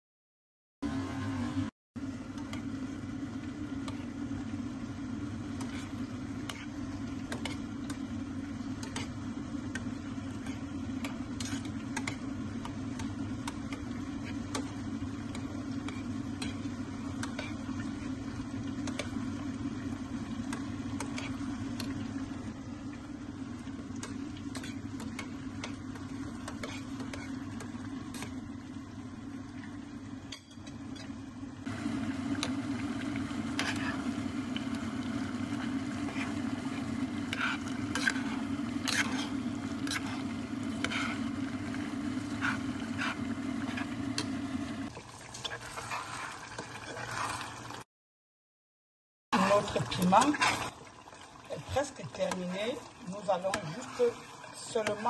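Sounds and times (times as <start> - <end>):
steady low hum: 0.9 - 44.9
pot simmering with pops: 2.0 - 47.8, 49.3 - 55.0
metal spoon stirring in pot: 5.5 - 19.3, 23.8 - 28.4, 33.4 - 34.8, 35.4 - 44.3, 45.2 - 47.7, 49.4 - 55.0.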